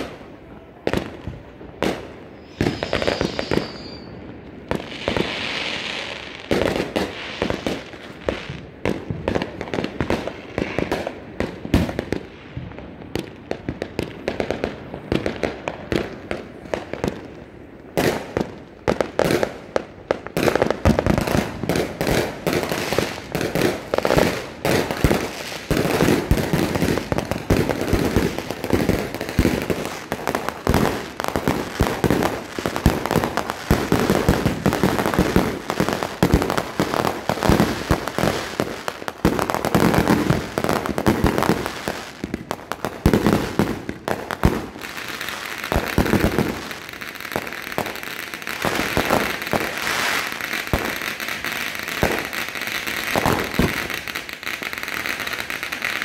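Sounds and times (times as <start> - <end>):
firecrackers crackling: 0.0 - 56.0
fireworks bangs and pops: 0.0 - 56.0
firework whistle: 2.2 - 6.4.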